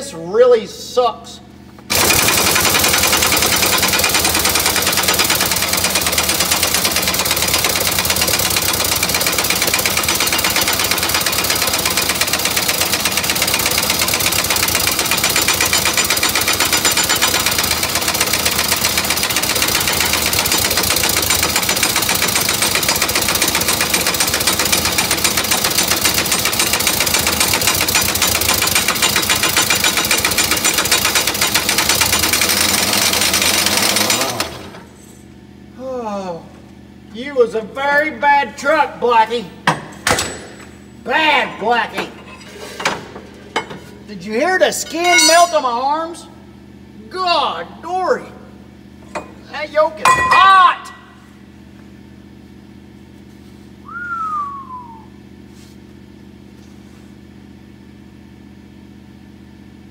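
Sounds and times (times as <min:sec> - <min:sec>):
pneumatic air tool hammering: 0:01.9 - 0:34.9.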